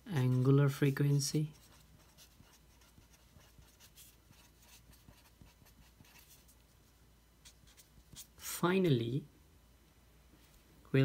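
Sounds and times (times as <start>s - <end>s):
low room hum: 0.0s - 11.0s
marker scratching on paper: 1.5s - 6.7s, 7.4s - 8.4s.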